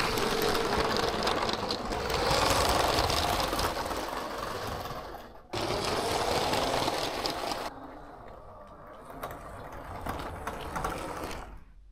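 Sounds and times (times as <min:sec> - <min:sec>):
toy train motor whine: 0:00.0 - 0:07.8.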